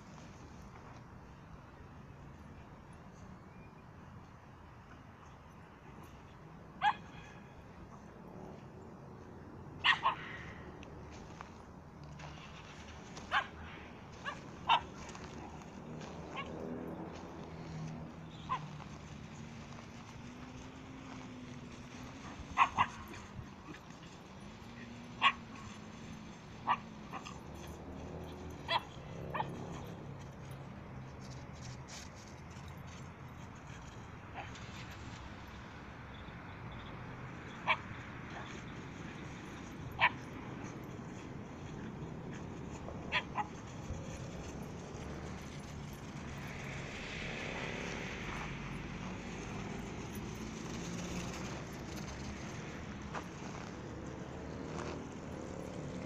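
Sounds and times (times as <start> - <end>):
dog yipping: 6.8 - 7.1, 9.8 - 10.4, 14.2 - 15.0, 18.5 - 18.8, 22.2 - 23.8, 25.2 - 25.8, 26.6 - 27.8, 28.6 - 29.9, 37.6 - 38.6, 39.9 - 40.3, 43.0 - 43.6
dog yapping: 9.8 - 10.4, 25.2 - 25.4, 28.7 - 29.6, 43.1 - 43.6.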